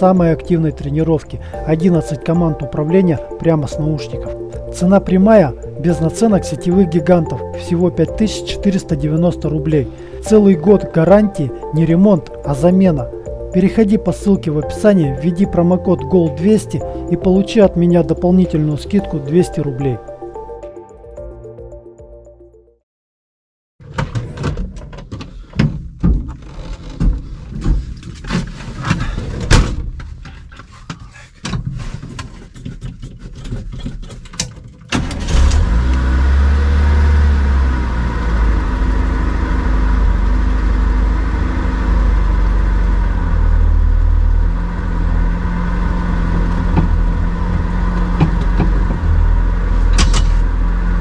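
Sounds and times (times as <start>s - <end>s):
knocks and clatter: 23.8s - 35.0s
vehicle engine running: 35.4s - 51.0s.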